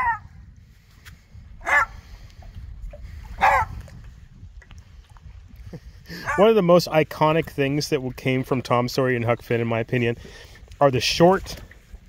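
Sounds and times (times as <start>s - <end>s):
dog yelping whines: 0.0s - 0.2s, 1.6s - 1.9s, 3.4s - 3.7s.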